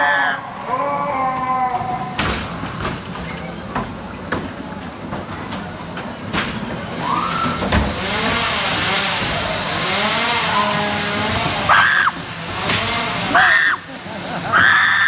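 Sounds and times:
ride car knocking and clattering: 0:02.1 - 0:06.9.

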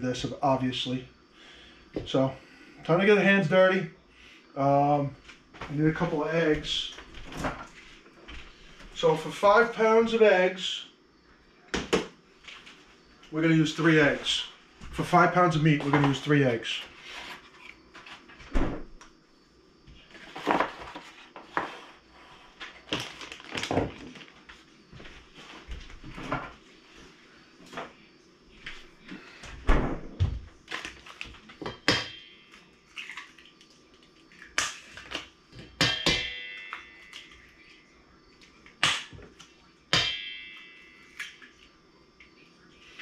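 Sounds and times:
eggs cracked on metal bowl: 0:38.6 - 0:39.2.

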